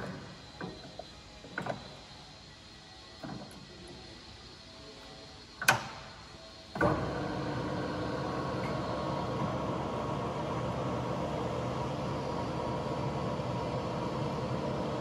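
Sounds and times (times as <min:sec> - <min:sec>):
lathe running hum: 0:06.6 - 0:15.0.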